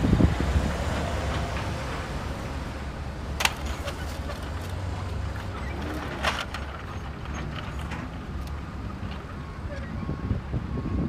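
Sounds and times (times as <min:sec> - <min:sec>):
toy truck wheels rolling: 0:03.4 - 0:09.9.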